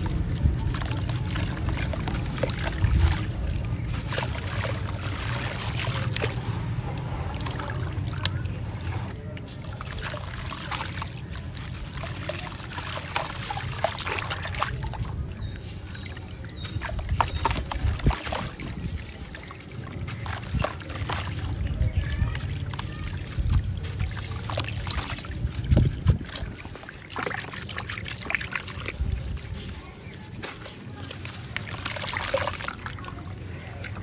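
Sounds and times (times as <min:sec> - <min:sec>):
grit splashing into water: 0:00.0 - 0:34.0.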